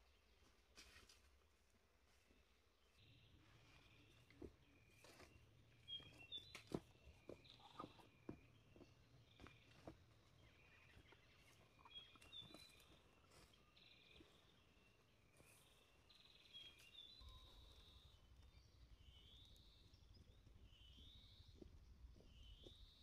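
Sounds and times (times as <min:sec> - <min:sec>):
footsteps on leafy dirt trail: 0:00.4 - 0:17.7
faint high chirps: 0:10.6 - 0:23.0.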